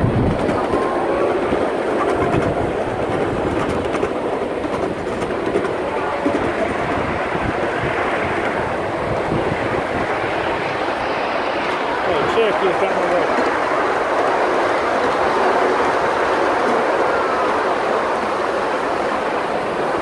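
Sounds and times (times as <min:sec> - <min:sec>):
wheels clicking over rails: 0:00.0 - 0:07.6
miniature train rumbling: 0:00.0 - 0:20.0.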